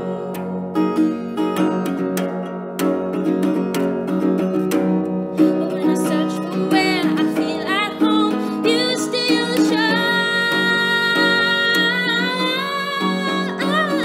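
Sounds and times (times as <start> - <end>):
woman singing: 0.0 - 1.2, 5.4 - 14.0
acoustic guitar strumming: 0.0 - 14.0.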